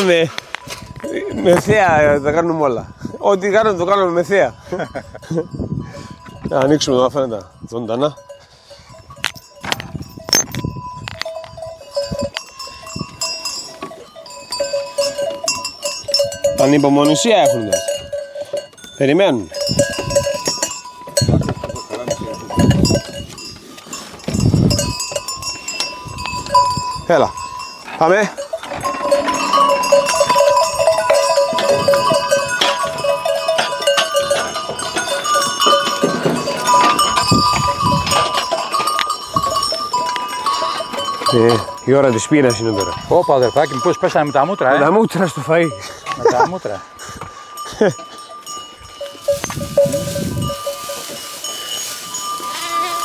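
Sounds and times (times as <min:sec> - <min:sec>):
animal bells clanking: 0:00.0 - 0:53.0
sheep or goats bleating: 0:52.4 - 0:53.0.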